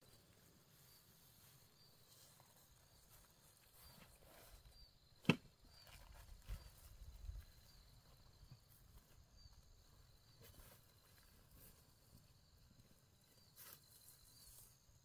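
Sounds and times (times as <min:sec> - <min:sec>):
faint chirping: 0:00.0 - 0:15.0
backpack dropped onto grass: 0:05.2 - 0:06.8.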